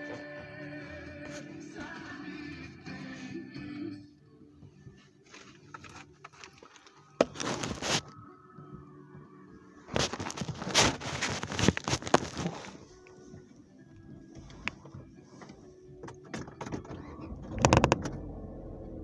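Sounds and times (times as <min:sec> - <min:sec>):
crackling rustling with sharp clicks: 0:09.9 - 0:13.6, 0:14.4 - 0:18.4
faint low car hum: 0:17.2 - 0:19.0.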